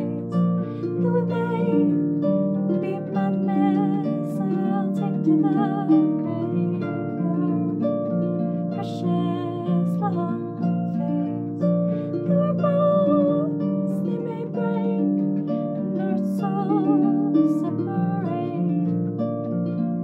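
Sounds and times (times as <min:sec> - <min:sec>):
woman singing with vibrato: 0:00.0 - 0:02.0, 0:02.8 - 0:07.9, 0:08.8 - 0:11.6, 0:12.2 - 0:15.1, 0:16.0 - 0:18.8
harp playing: 0:00.0 - 0:20.0.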